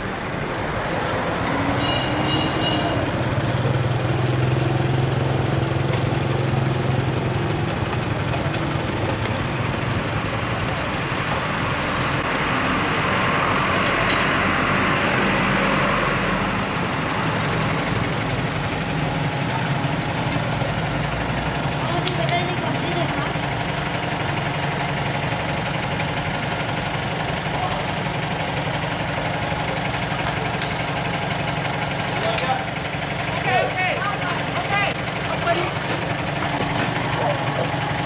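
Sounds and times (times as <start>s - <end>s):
street traffic: 0.0s - 38.0s
motorbike engine running: 2.2s - 11.6s.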